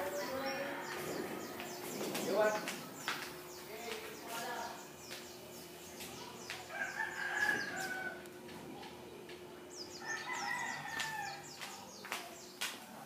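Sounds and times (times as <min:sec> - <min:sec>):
rooster crowing: 0:06.7 - 0:08.3, 0:10.0 - 0:11.5.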